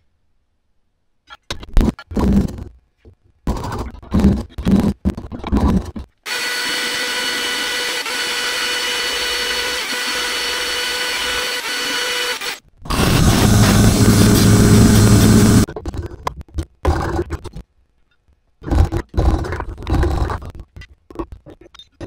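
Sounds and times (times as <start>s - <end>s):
power tool motor whining: 6.3s - 15.7s
deeper machine sound: 12.9s - 15.7s.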